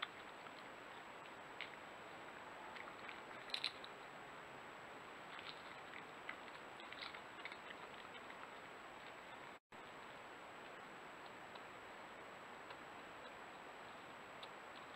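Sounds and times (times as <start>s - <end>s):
badgers foraging crunching clicks: 2.7s - 4.1s, 5.3s - 9.6s, 12.6s - 14.9s.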